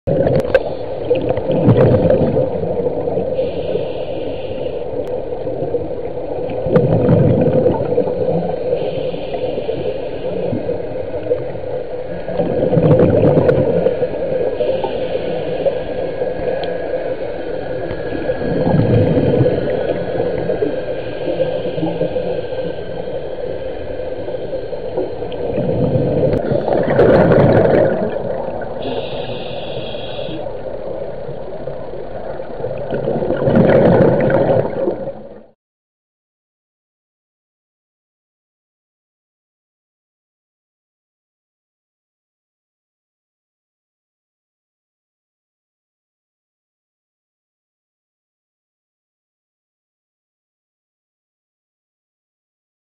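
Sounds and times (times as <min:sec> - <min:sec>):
low underwater drone: 0:00.1 - 0:35.6.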